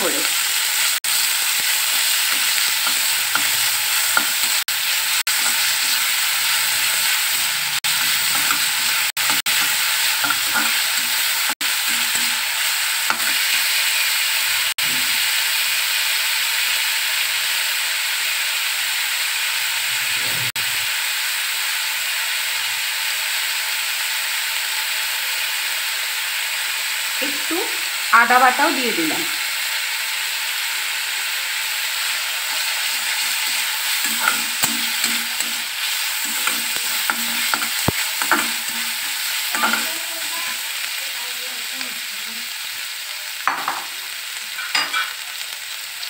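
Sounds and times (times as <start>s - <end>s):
onion and garlic sizzling in oil: 0.0s - 46.0s
spatula scraping pan: 1.1s - 13.7s, 32.4s - 40.6s.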